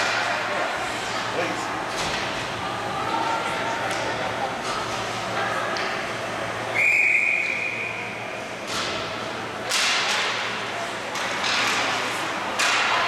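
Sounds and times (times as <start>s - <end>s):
hockey sticks clacking on ice: 0.0s - 0.4s, 8.7s - 10.5s, 11.1s - 13.0s
referee's whistle: 6.8s - 8.0s.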